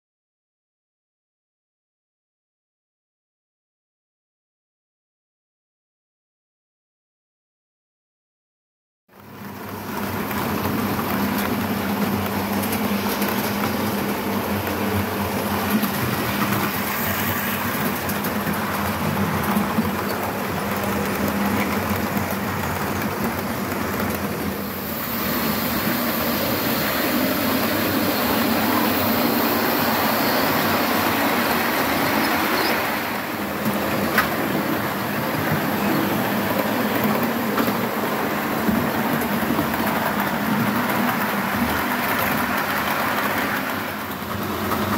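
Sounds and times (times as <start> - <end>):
wheels rumbling on track: 9.4 - 44.9.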